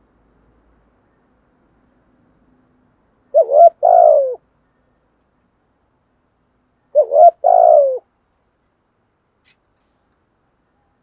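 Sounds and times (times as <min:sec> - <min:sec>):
dove cooing: 0:03.3 - 0:04.4, 0:06.9 - 0:08.1.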